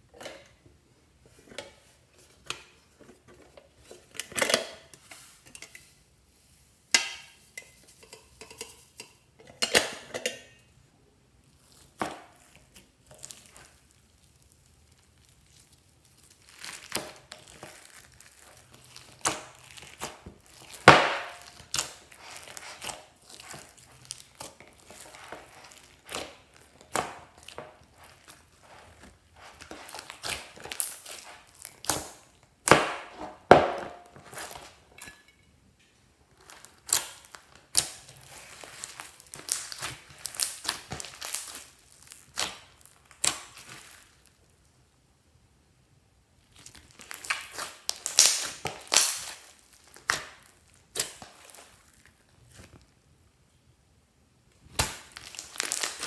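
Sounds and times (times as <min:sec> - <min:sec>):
slime crackling and squishing: 0:11.4 - 0:34.9, 0:36.3 - 0:44.7, 0:46.4 - 0:53.0, 0:54.6 - 0:56.0.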